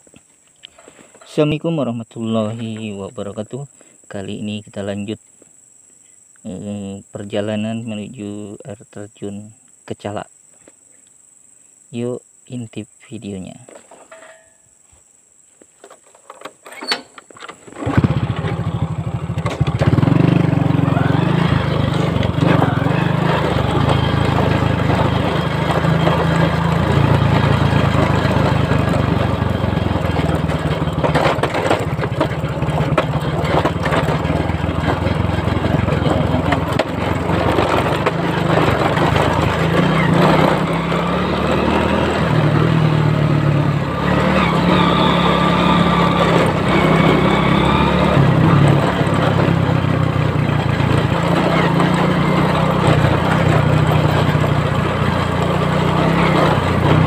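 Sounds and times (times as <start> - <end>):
small motorcycle engine running: 16.8 - 57.0.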